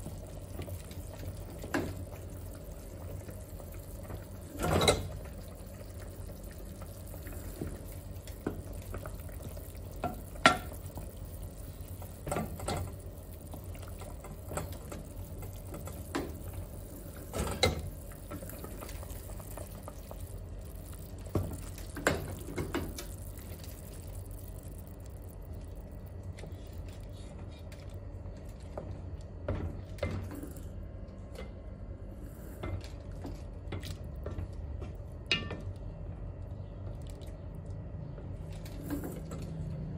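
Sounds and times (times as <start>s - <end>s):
liquid sloshing in a pot: 0.0s - 28.0s
steady low hum: 0.0s - 39.9s.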